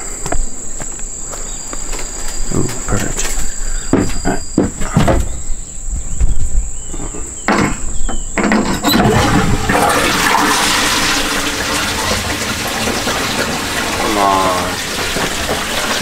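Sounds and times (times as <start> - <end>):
knocks and clatters: 7.0 - 9.9
toilet flushing: 8.9 - 16.0.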